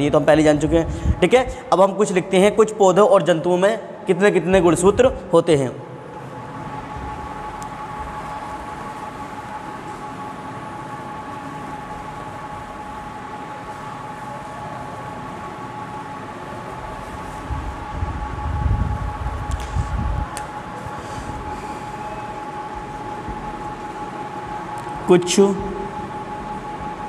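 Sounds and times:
high steady tones: 20.6 - 27.0.

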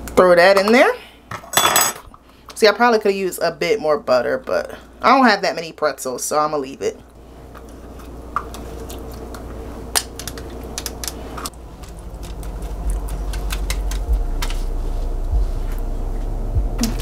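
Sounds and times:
low hum: 11.0 - 17.0.

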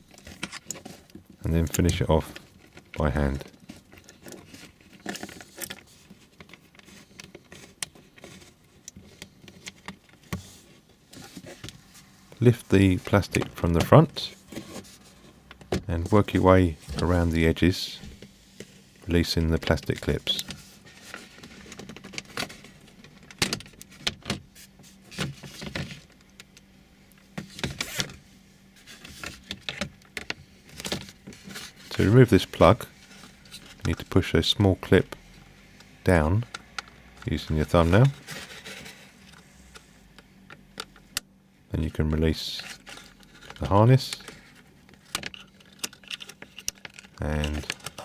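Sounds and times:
screw clicks and scratching: 45.0 - 48.0.

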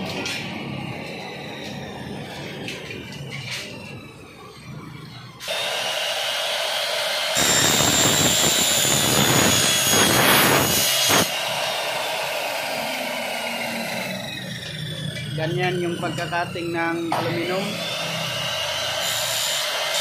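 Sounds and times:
miter saw motor whine: 0.0 - 20.0
saw blade cutting aluminum: 5.4 - 20.0.

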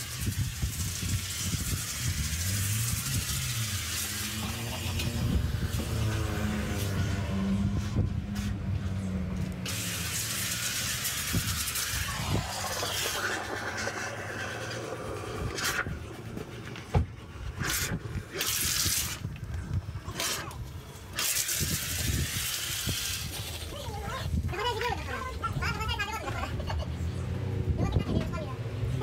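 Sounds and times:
foam lance spraying hiss: 9.7 - 14.8.

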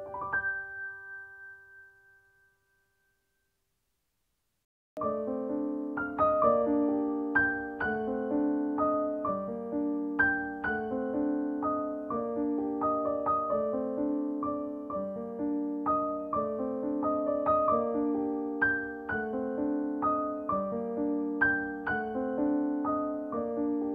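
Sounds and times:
piano melody: 0.0 - 3.0, 5.0 - 23.9.

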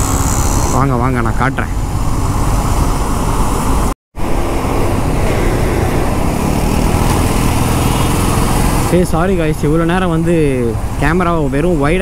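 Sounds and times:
motorcycle engine running: 5.8 - 9.3.

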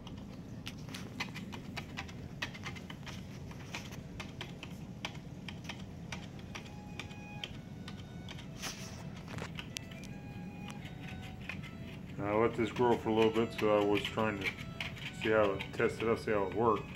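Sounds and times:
blade scraping aquarium glass: 10.7 - 16.9.

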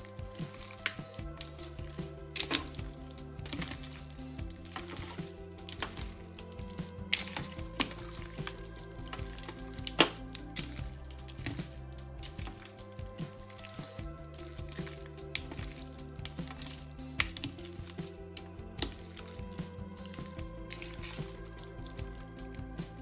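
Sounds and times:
background music: 0.0 - 23.0
wet squelching of raw chicken: 0.0 - 23.0.

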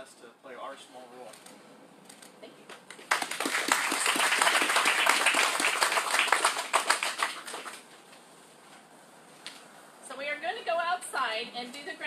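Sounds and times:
audience applauding: 2.9 - 7.9.

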